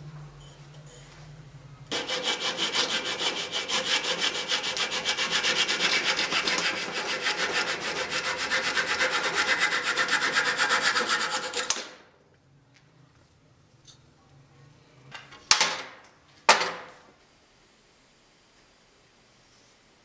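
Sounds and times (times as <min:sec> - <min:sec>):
hand saw cutting wood: 0:01.9 - 0:12.0.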